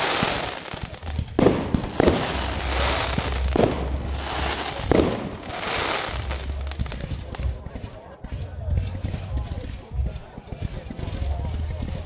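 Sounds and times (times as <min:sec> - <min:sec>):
firework bangs: 0:00.0 - 0:08.4
fireworks crackling: 0:00.0 - 0:12.0.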